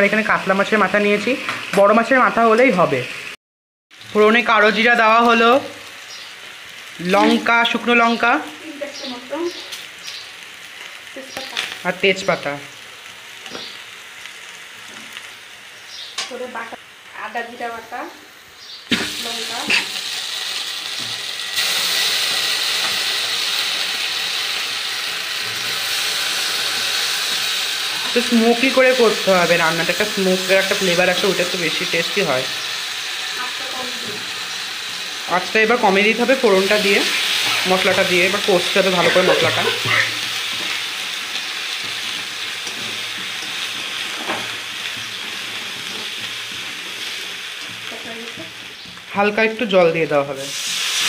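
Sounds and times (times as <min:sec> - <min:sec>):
paste sizzling in hot oil: 0:00.0 - 0:51.0.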